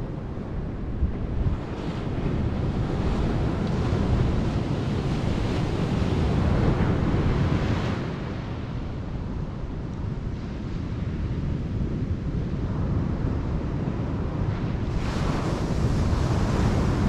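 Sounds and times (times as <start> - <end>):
wind rumbling on microphone: 0.0 - 17.0
surf breaking on sandy beach: 14.8 - 17.0.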